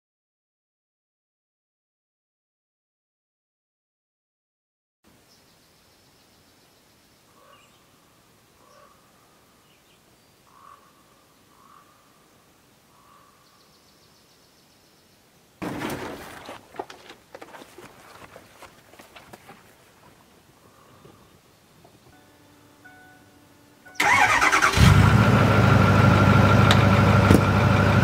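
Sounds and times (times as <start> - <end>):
rustling and knocks: 15.6 - 20.2.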